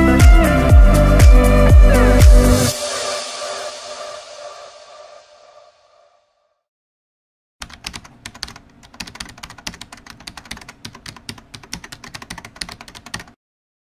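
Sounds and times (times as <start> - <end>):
computer keyboard typing: 7.6 - 13.4.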